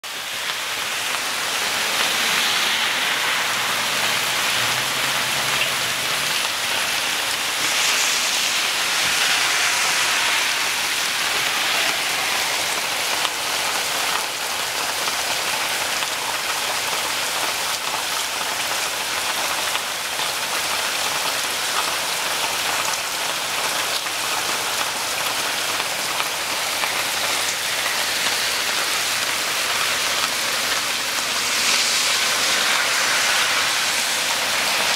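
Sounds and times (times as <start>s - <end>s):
heavy rain falling: 0.0s - 34.9s.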